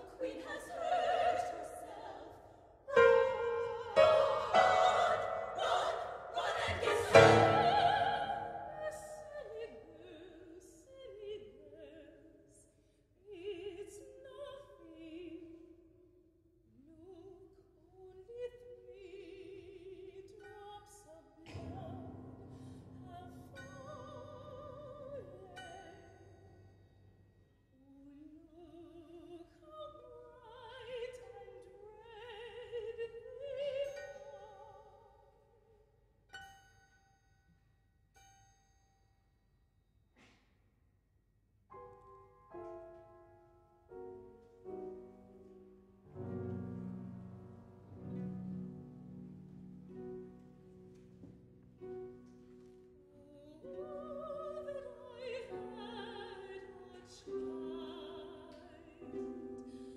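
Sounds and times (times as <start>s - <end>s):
woman singing opera: 0.0s - 12.6s, 13.2s - 15.8s, 16.8s - 22.2s, 23.0s - 26.3s, 27.8s - 35.3s, 53.1s - 59.9s.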